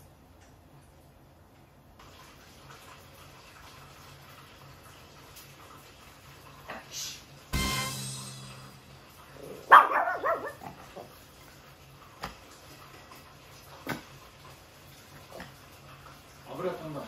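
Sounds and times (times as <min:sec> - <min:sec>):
loud ringing hit: 0:07.6 - 0:09.4
small dog barking: 0:09.5 - 0:11.1.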